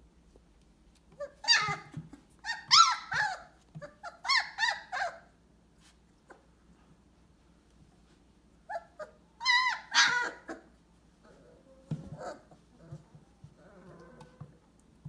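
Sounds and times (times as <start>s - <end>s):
puppy whimpering: 1.1s - 5.3s, 8.6s - 14.6s.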